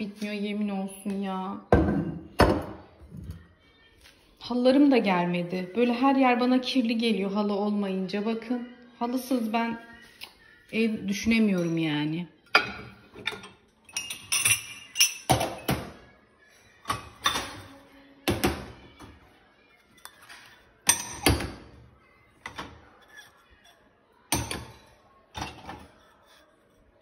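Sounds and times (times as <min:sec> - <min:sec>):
glasses and dishes clinking: 0:12.5 - 0:16.0, 0:16.6 - 0:18.6, 0:19.8 - 0:21.7, 0:22.4 - 0:26.4.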